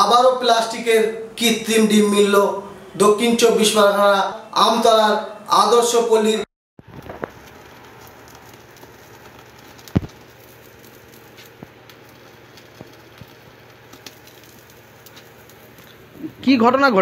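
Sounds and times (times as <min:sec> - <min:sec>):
egg crackling in flame: 0:06.8 - 0:16.6
gas burner hissing: 0:06.8 - 0:16.9.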